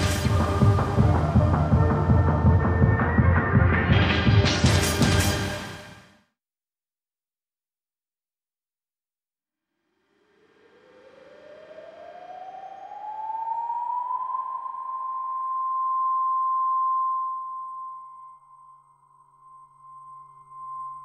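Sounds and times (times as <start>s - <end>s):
siren-like rising tone: 10.3s - 21.0s.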